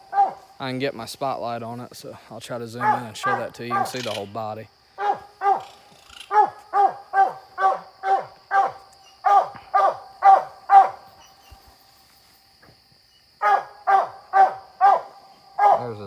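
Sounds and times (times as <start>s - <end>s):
dog barking: 0.1s - 0.4s, 2.8s - 4.0s, 5.0s - 5.7s, 6.3s - 11.1s, 13.4s - 15.9s.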